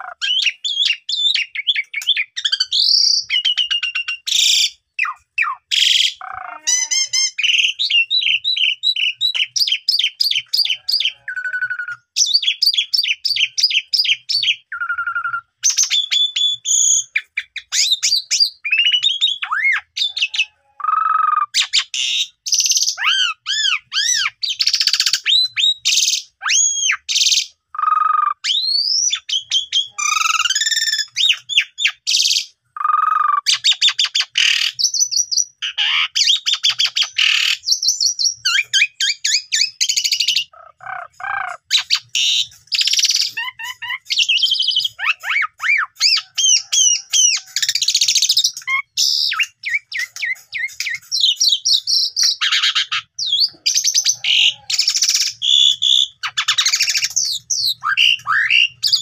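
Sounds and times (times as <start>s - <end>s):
starling singing: 0.0s - 59.0s.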